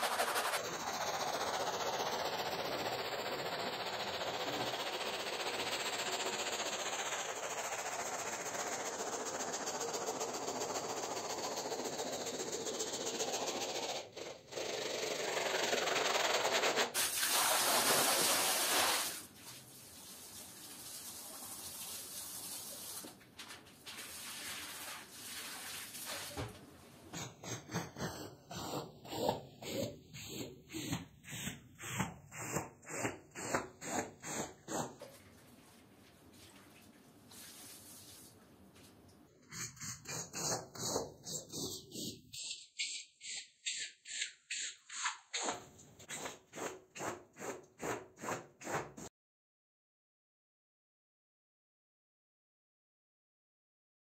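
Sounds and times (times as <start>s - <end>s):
brush scrubbing a rug: 0.0s - 23.0s, 23.9s - 26.5s, 27.2s - 36.5s, 39.5s - 42.5s, 46.0s - 49.1s
tool strokes on wet rug: 0.0s - 49.1s
water spray hissing: 17.0s - 19.3s.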